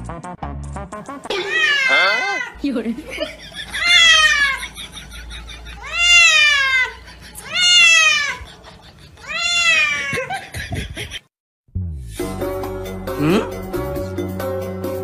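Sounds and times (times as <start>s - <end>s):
cat meowing loudly: 1.3s - 2.6s, 3.8s - 4.6s, 5.8s - 8.4s, 9.2s - 10.1s.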